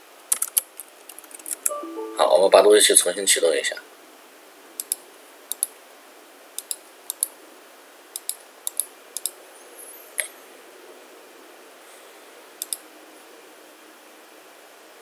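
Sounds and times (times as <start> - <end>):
faint steady hiss: 0.0 - 15.0
computer mouse clicking: 4.8 - 5.7, 6.6 - 7.3, 8.2 - 9.4, 12.6 - 12.8.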